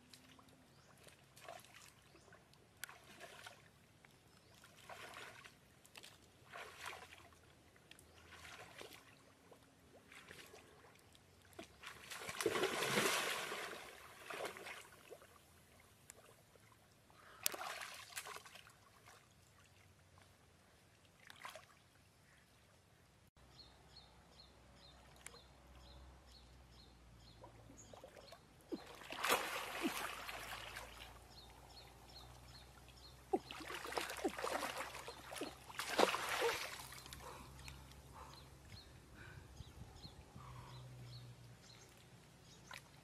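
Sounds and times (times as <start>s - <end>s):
splashing in muddy water: 0.0s - 3.7s, 4.5s - 15.4s, 17.3s - 19.7s, 21.2s - 21.8s, 27.4s - 38.5s.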